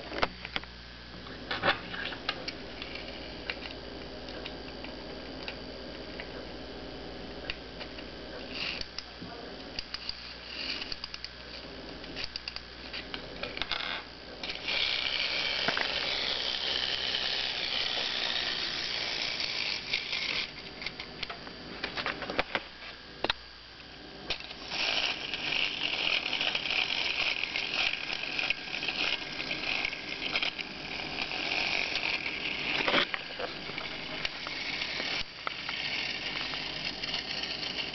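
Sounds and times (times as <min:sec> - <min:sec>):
clockwork gear whirr: 0:07.8 - 0:09.0, 0:09.7 - 0:11.3, 0:13.4 - 0:21.3, 0:24.3 - 0:37.9
ratchet clicking: 0:24.3 - 0:33.2.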